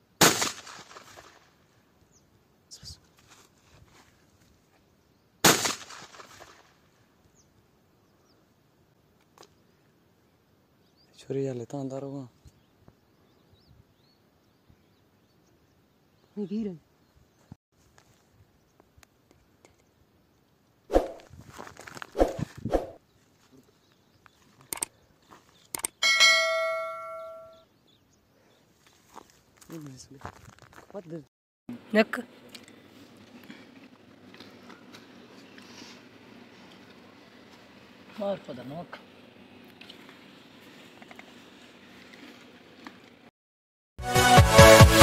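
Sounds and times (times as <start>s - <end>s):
shotgun shot: 0.2s - 1.4s, 5.4s - 6.7s
small clicks: 24.6s - 24.9s, 25.7s - 26.0s
bell ding: 26.0s - 27.6s.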